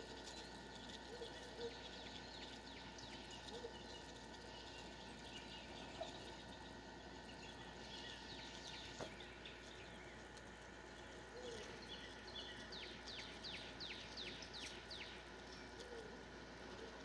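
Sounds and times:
songbird singing whistled notes: 0:11.4 - 0:16.1.

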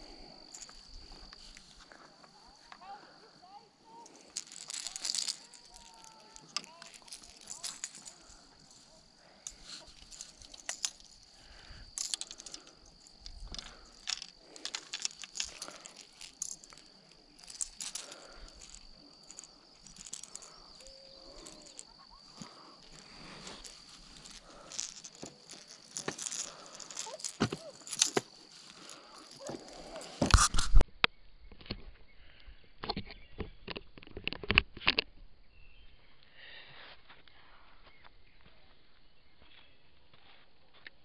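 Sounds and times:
insects droning: 0:00.0 - 0:34.3
handling clicks and knocks: 0:04.1 - 0:11.3, 0:12.0 - 0:30.8.

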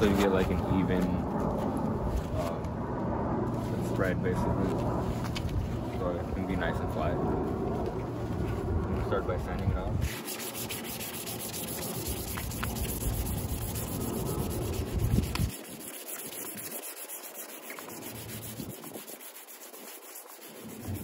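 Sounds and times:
wet sandpaper scratching: 0:00.0 - 0:01.1, 0:10.0 - 0:21.0.

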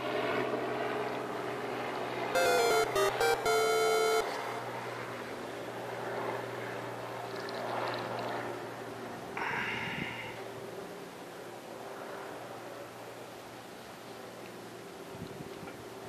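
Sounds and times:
bright electronic melody: 0:02.4 - 0:04.4.

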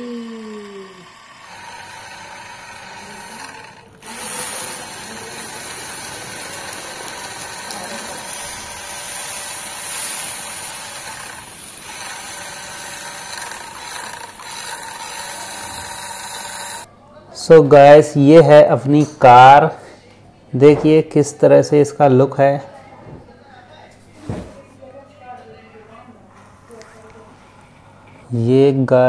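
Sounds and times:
toy car electric motor whirring: 0:00.0 - 0:16.9.

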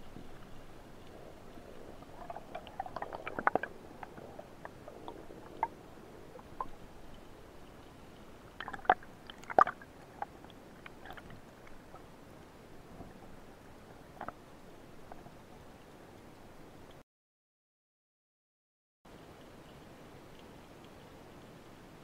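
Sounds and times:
faint hiss: 0:00.0 - 0:17.0
underwater clicks and knocks: 0:01.8 - 0:05.8, 0:14.2 - 0:14.4.

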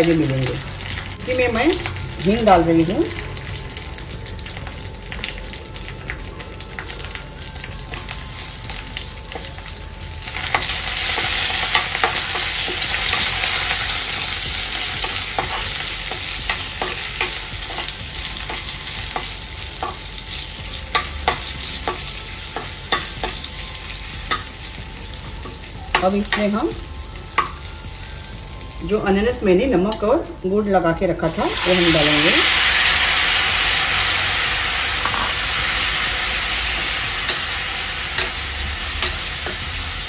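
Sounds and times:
oil sizzling in a pan: 0:00.0 - 0:40.0
metal spoon scraping a pan: 0:10.4 - 0:20.2, 0:35.0 - 0:39.8.

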